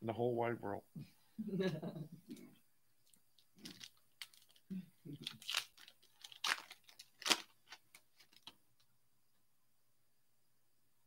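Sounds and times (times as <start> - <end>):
wrappers crinkling: 3.3 - 8.6
trading cards shuffling: 5.2 - 8.6.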